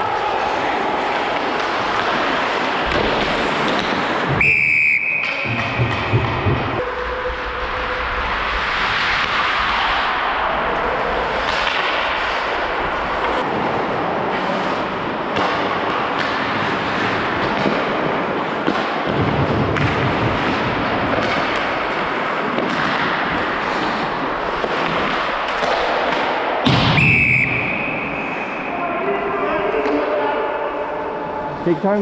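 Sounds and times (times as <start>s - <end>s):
hockey sticks and puck clacking: 0.0s - 28.6s, 29.7s - 30.3s
skate blades scraping ice: 0.4s - 4.4s, 7.6s - 10.4s, 11.0s - 26.5s.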